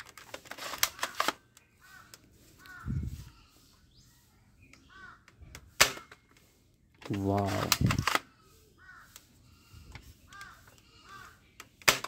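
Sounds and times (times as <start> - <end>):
crow cawing: 1.8 - 3.6, 4.8 - 5.4, 8.3 - 11.5
toy gun click: 7.3 - 8.3.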